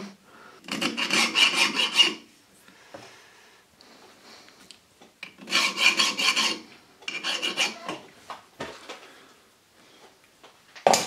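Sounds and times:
hand file rasping on steel: 0.6s - 2.3s, 5.2s - 8.0s.

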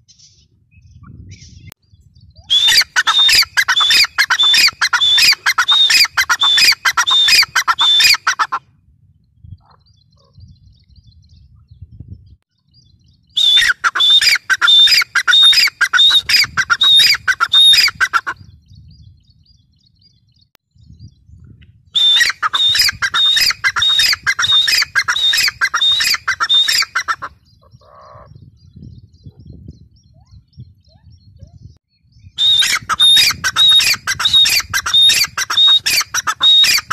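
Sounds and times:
grey francolin calling: 2.5s - 8.6s, 13.4s - 18.4s, 22.0s - 28.4s, 32.4s - 36.9s.

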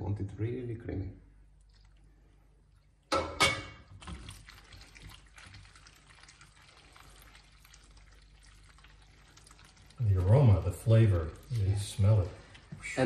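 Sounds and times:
water splashing into pan: 3.0s - 13.0s
pasta stirred with wooden spoon: 3.8s - 13.0s.

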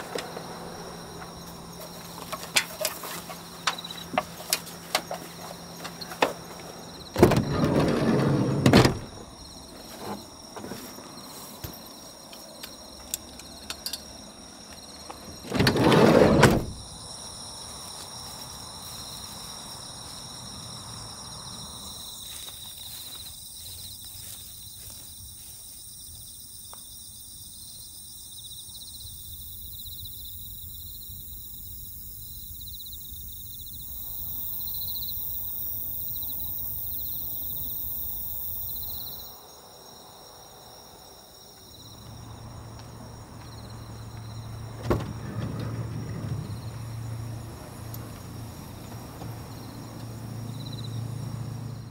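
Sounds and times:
van sliding door rolling: 0.0s - 10.9s, 15.2s - 16.9s, 42.2s - 51.8s
insects trilling: 0.0s - 51.9s.

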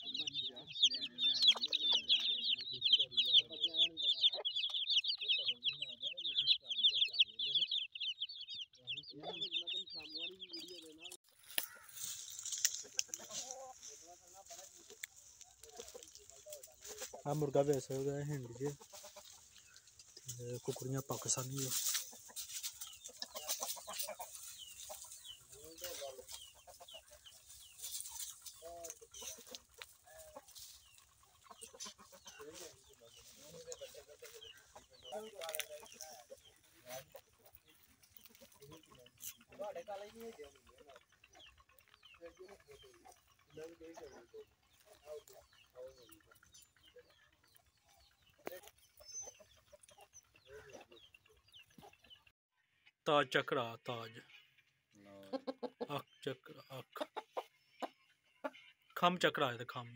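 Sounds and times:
chickens clucking: 0.0s - 59.9s.

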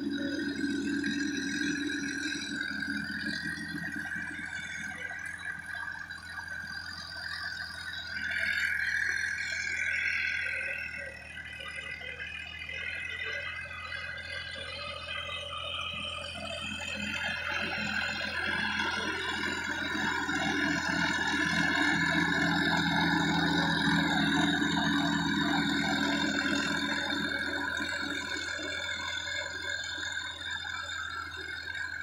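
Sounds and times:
rotary tiller rattling and whining: 0.0s - 32.0s
tractor engine hum: 0.0s - 32.0s.

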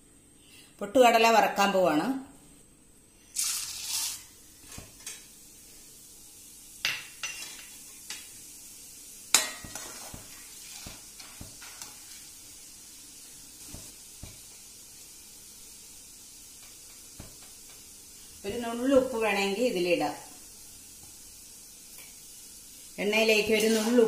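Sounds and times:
faint frying sizzle: 0.0s - 24.0s
chickpeas sizzling in hot oil: 3.2s - 24.0s
metal ladle knocking and scraping pan: 9.3s - 12.0s.

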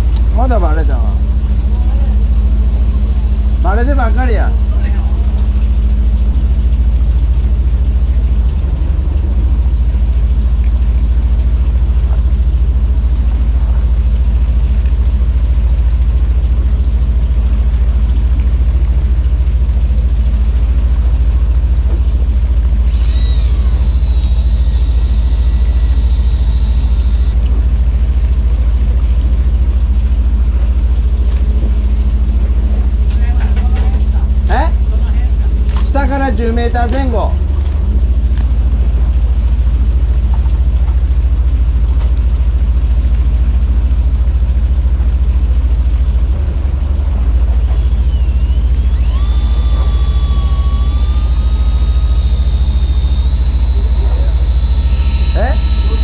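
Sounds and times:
high-pitched whine: 0.0s - 7.0s, 22.7s - 30.0s, 46.4s - 56.0s
boat engine low rumble: 0.0s - 56.0s.

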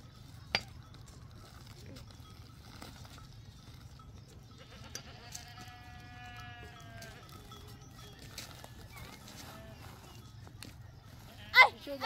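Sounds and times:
goat bleating: 4.6s - 7.9s, 8.5s - 10.1s, 11.3s - 12.0s.

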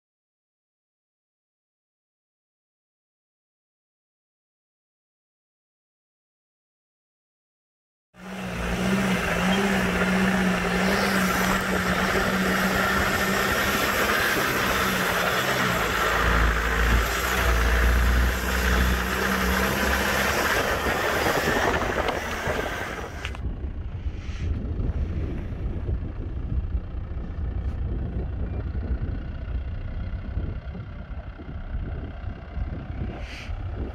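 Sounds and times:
vehicle engine driving off-road: 8.2s - 33.9s
heavy low rumble: 8.4s - 33.9s.

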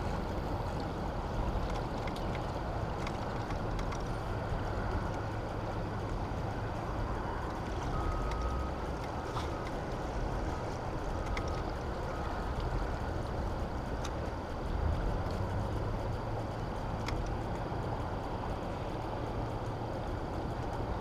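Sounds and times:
faint thin whine: 0.0s - 21.0s
faint ticks: 7.1s - 21.0s.

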